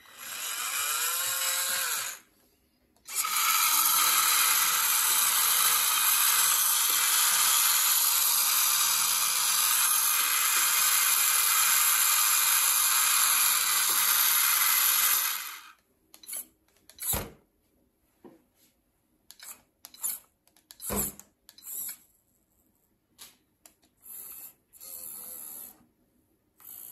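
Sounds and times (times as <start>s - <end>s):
small electric motor running: 0.0s - 2.3s, 3.1s - 16.4s, 24.0s - 25.8s, 26.6s - 26.9s.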